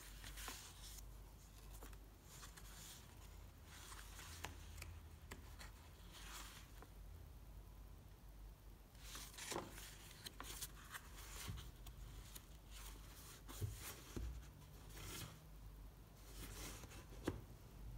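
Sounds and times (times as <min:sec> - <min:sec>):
sketchbook pages turning: 0:00.0 - 0:06.8, 0:09.0 - 0:15.3.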